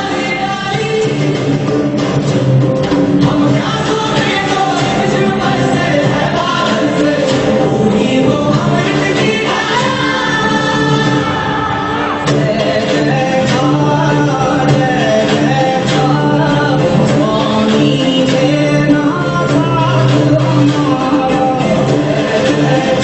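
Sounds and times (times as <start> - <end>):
group singing: 0.0 - 2.4, 3.0 - 23.0
instrumental backing: 0.0 - 23.0
percussion strikes: 0.0 - 23.0.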